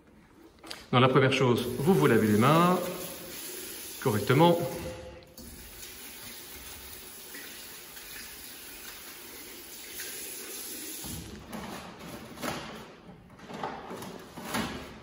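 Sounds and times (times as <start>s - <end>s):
water running from tap: 1.6s - 11.4s.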